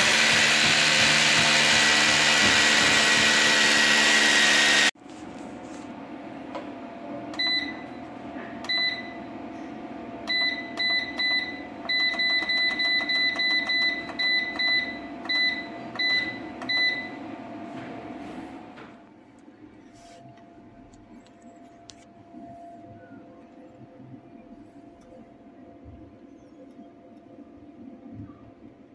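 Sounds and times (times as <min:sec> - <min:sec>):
steady hum: 0:19.0 - 0:28.9.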